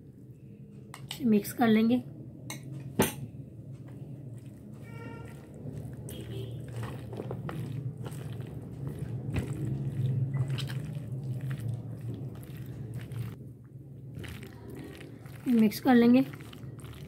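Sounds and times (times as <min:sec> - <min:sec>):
low steady hum: 0:00.0 - 0:17.0
spatula stirring wet salad: 0:04.0 - 0:13.4, 0:14.1 - 0:17.0.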